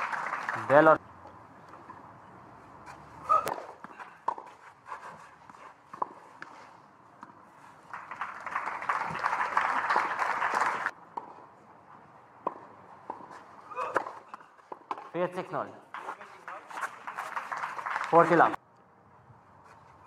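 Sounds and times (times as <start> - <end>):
crowd applauding: 0.0 - 1.0, 7.9 - 10.9, 16.0 - 18.6.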